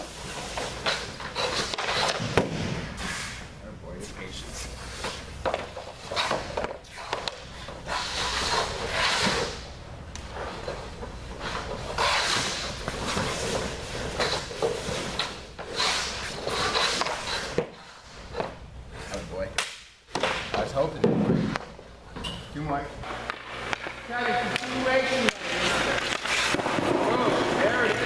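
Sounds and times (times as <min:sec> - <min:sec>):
skate blades scraping ice: 0:00.0 - 0:03.5, 0:04.6 - 0:19.3, 0:23.0 - 0:28.0
pucks and sticks knocking: 0:05.0 - 0:09.6, 0:19.5 - 0:22.3, 0:23.0 - 0:28.0.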